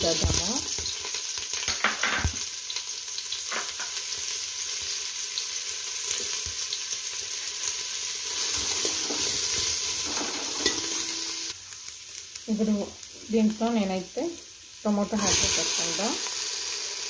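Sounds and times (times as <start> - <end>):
onions sizzling in hot fat: 0.0 - 17.0.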